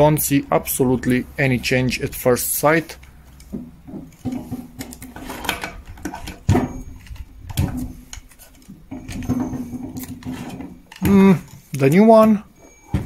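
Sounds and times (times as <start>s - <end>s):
power cables rustling: 0.0s - 13.0s.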